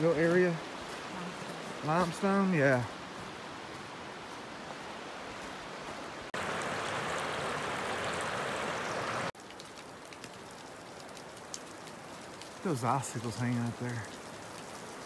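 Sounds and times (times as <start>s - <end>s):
river rushing over rocks: 6.4s - 9.3s.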